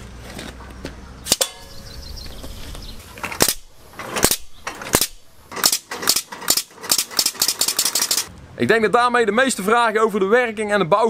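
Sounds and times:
compressed air cannon blasts: 3.4s - 8.3s.

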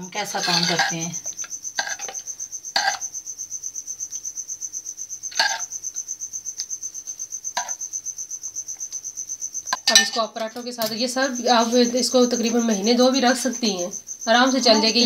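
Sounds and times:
cricket chirping: 0.0s - 15.0s
spoon scraping steel pot: 0.2s - 2.2s, 2.8s - 3.0s, 5.3s - 5.7s.

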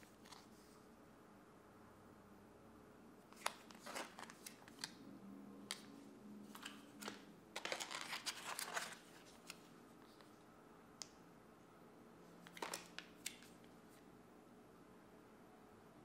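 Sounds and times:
plastic packets crinkling: 6.5s - 9.6s, 12.4s - 13.6s.

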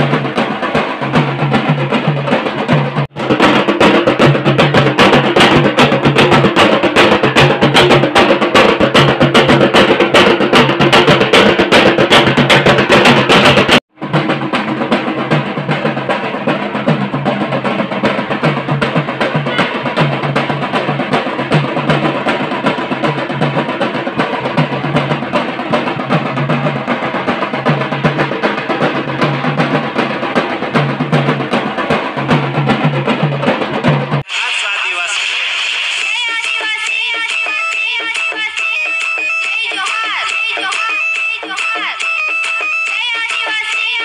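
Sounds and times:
dhol drums beaten fast: 0.0s - 34.3s.

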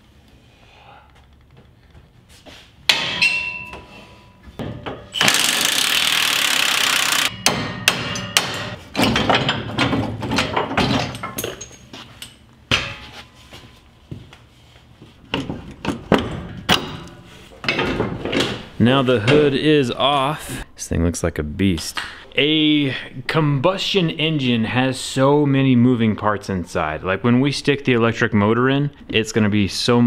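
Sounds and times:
metal tools clanking: 2.9s - 5.3s, 7.3s - 13.5s
sharp metallic knock: 7.3s - 8.8s.

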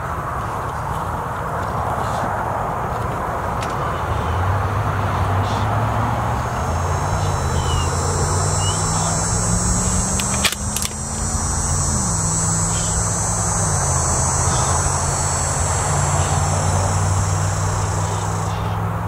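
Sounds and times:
vehicle engine droning: 0.0s - 19.0s
sharp clicks: 6.5s - 18.7s.

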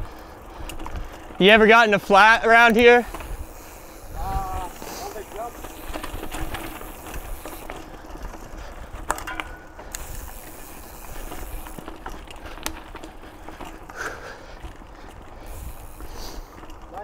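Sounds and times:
bike clicks and rattles: 0.0s - 17.0s
bike tyres on dirt trail: 0.0s - 17.0s
low wind rumble on microphone: 3.0s - 4.9s.

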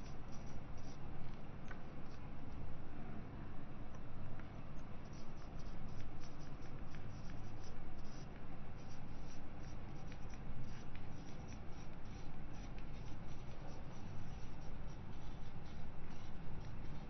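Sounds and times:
marker squeaking on whiteboard: 0.0s - 1.0s, 8.8s - 17.0s
low steady hum: 0.0s - 17.0s.

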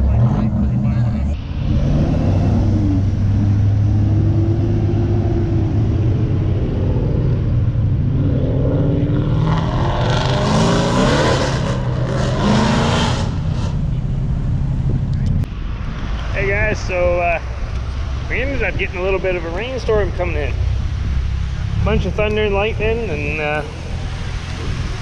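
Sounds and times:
car accelerating hard: 0.0s - 14.1s
car engines droning: 0.0s - 25.0s
car passing: 0.0s - 25.0s.

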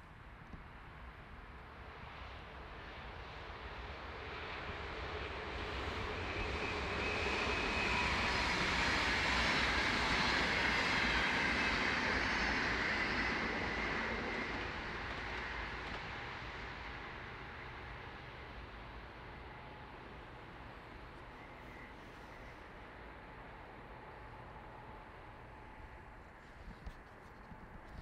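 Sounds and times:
train wheels rushing on rail: 2.8s - 26.0s
thin whine: 17.4s - 28.0s.

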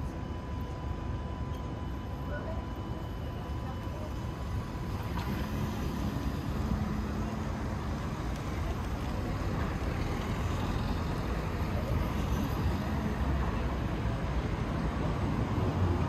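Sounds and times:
low engine hum: 3.4s - 16.0s.

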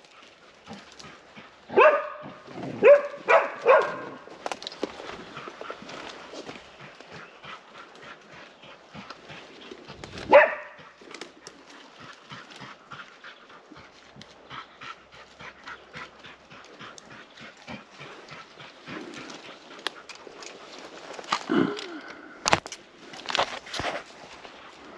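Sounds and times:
dog panting: 0.1s - 4.0s, 5.0s - 21.2s
dog barking: 1.7s - 4.3s, 10.3s - 11.0s.

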